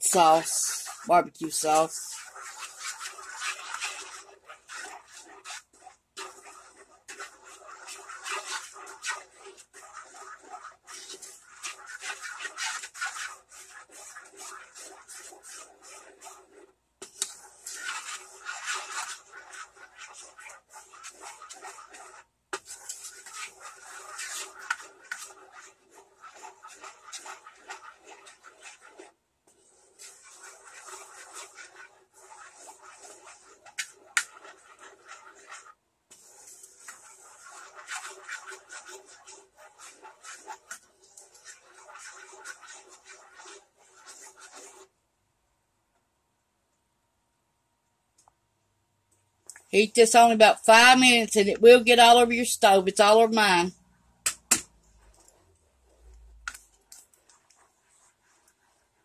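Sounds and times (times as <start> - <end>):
wooden spoon stirring sauce in a saucepan: 0.0 - 45.1, 49.4 - 59.0.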